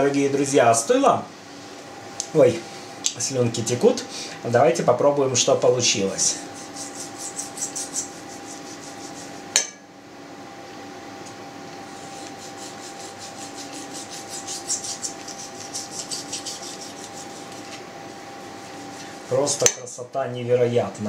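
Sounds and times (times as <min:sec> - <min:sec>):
knife sawing through meat: 0:06.2 - 0:09.4, 0:11.9 - 0:19.3.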